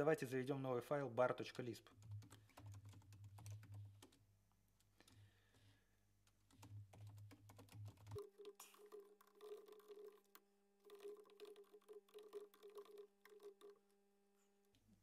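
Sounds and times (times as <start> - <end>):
faint keyboard typing: 1.4 - 4.2, 4.8 - 13.8.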